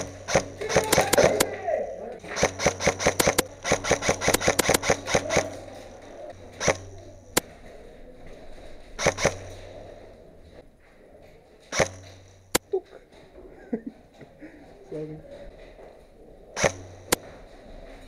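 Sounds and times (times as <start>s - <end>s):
airsoft guns firing: 0.0s - 7.5s, 9.0s - 9.9s, 11.7s - 12.6s, 16.6s - 17.4s.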